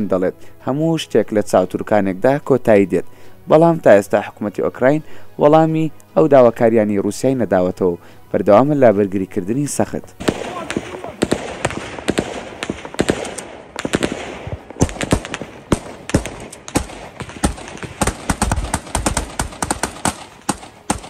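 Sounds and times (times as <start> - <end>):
gunshots: 10.2 - 21.0.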